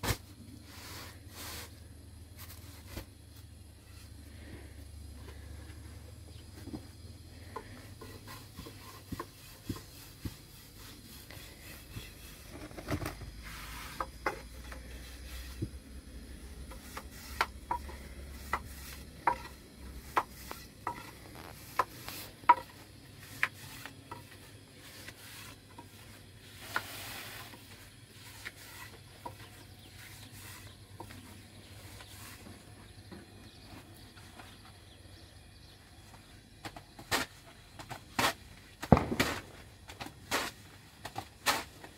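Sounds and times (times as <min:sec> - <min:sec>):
rolling pin rubbing over dough: 0:07.3 - 0:32.9.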